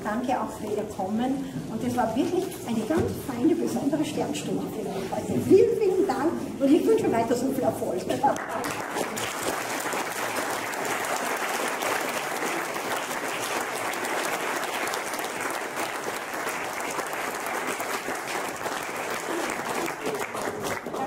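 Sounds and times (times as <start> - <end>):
audience applause: 8.4 - 21.0.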